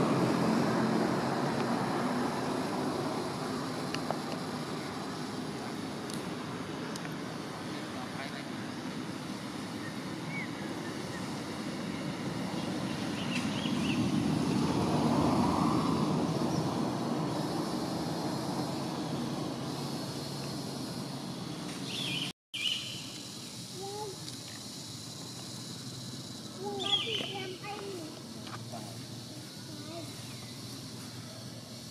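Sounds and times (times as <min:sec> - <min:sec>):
distant vehicle passing: 0:00.0 - 0:22.2
faint bird chirps: 0:21.8 - 0:24.2, 0:26.6 - 0:27.6.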